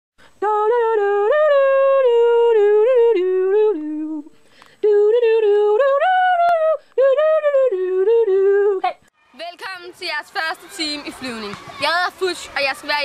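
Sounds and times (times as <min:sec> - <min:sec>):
high voice humming melody: 0:00.4 - 0:08.9.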